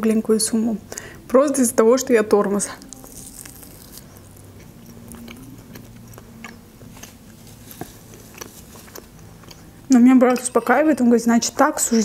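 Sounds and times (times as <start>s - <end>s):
person biting food: 2.8s - 4.4s.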